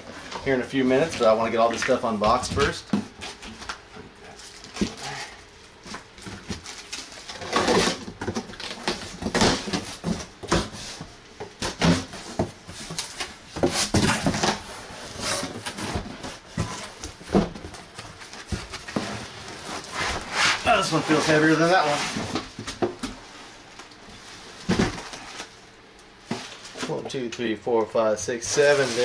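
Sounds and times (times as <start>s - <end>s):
foam packing rustling: 0.2s - 27.1s, 28.3s - 29.0s
cardboard flaps scraping: 11.6s - 23.4s, 28.5s - 29.0s.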